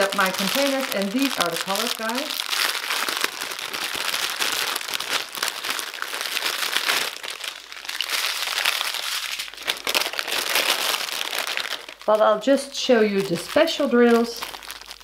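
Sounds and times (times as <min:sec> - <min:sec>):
plastic bags crinkling: 0:00.0 - 0:15.0.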